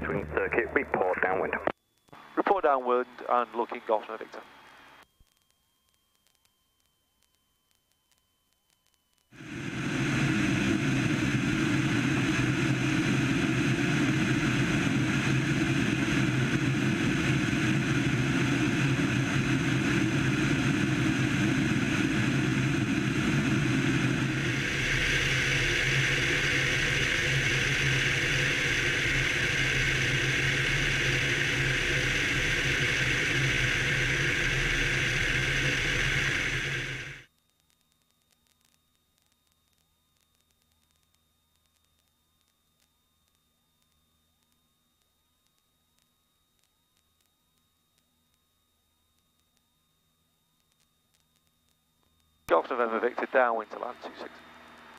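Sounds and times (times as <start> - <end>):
light aircraft engine drone: 0.0 - 4.5, 9.4 - 37.2, 52.5 - 54.9.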